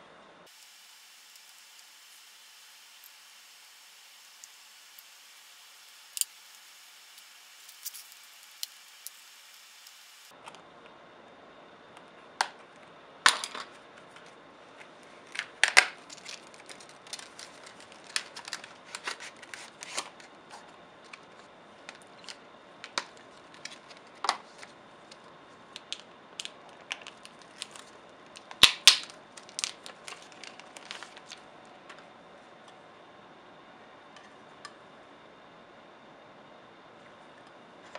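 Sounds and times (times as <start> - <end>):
plastic packaging crinkling: 1.1 - 9.8, 15.3 - 20.1, 25.8 - 31.4.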